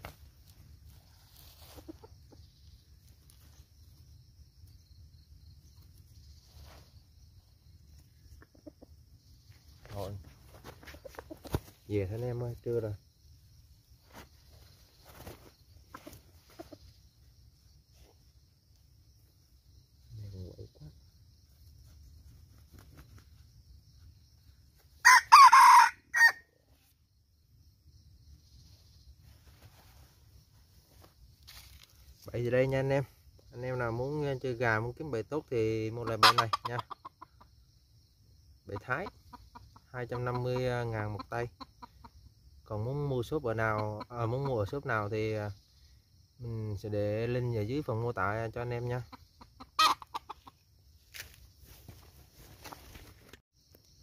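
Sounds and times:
faint chicken clucks: 0.0s - 27.3s, 28.0s - 53.0s
rooster crowing: 25.0s - 26.5s.

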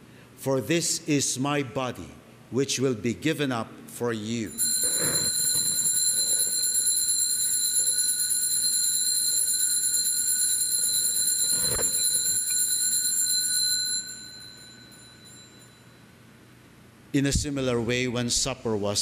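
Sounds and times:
altar bells ringing: 4.5s - 16.0s.

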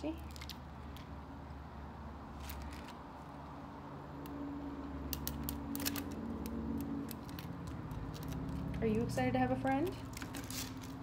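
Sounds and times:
animal crunching dry kibble: 5.2s - 8.8s.

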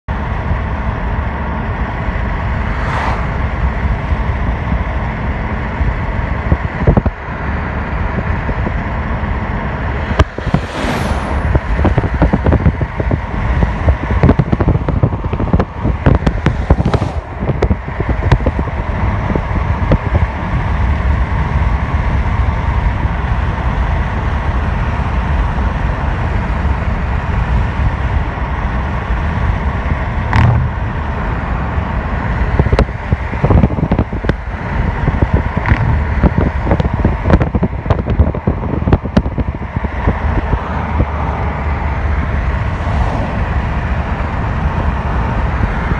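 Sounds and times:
road and tyre noise: 0.0s - 45.9s
sharp clicks and knocks: 30.3s - 30.8s.

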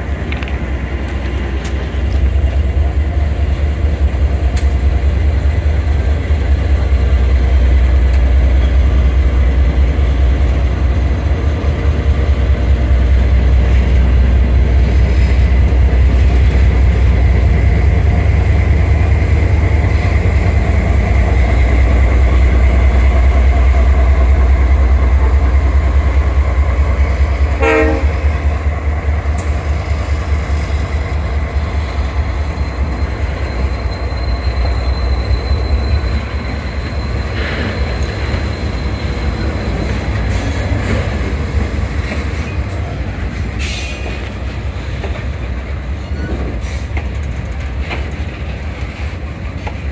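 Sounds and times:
diesel locomotives rumbling: 0.0s - 49.9s
locomotive horn toot: 27.5s - 28.5s.

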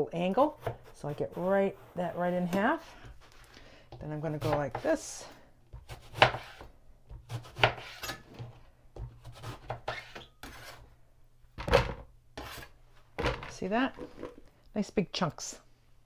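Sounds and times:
knife chopping on cutting board: 5.7s - 8.2s.

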